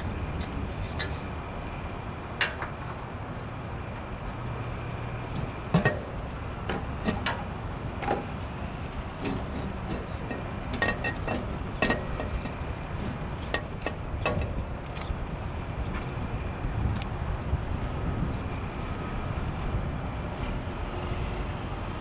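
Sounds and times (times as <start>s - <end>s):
metal clinks and knocks: 9.2s - 14.7s.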